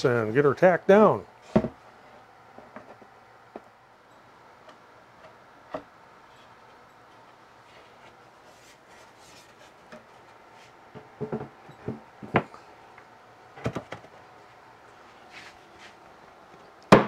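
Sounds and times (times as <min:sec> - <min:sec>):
hollow wooden knocks and clunks: 0:01.5 - 0:01.8, 0:10.9 - 0:12.5.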